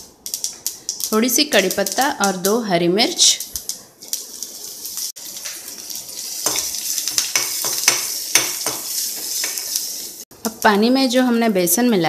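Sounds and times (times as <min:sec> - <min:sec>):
chillies sizzling in hot oil: 0:00.0 - 0:12.0
spoon knocking and scraping a pan: 0:03.4 - 0:10.1.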